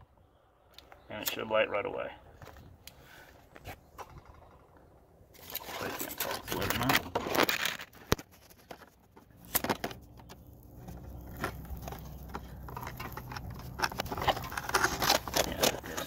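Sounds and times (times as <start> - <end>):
stove flame rumbling: 9.3 - 16.0.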